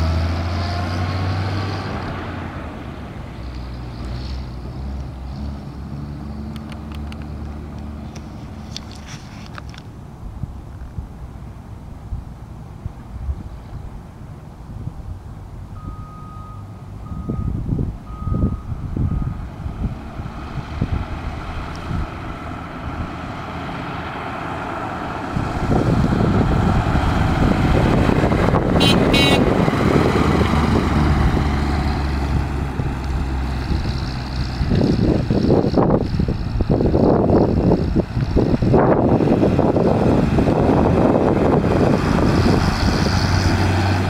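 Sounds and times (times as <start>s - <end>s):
truck reversing alarm beeping: 15.8s - 19.5s.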